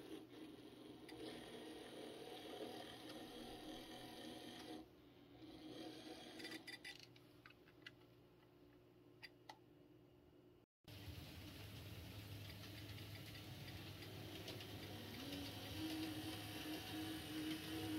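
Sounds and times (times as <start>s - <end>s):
model train motor whirring: 13.6s - 17.9s.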